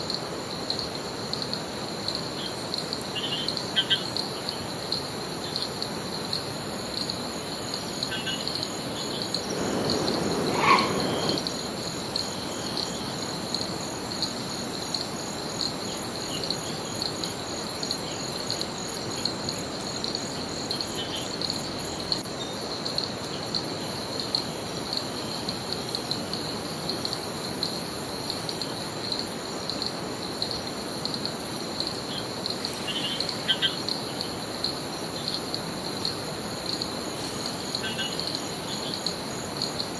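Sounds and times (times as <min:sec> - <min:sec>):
insects chirring: 0:00.1 - 0:39.9
bird chirps: 0:09.5 - 0:11.5.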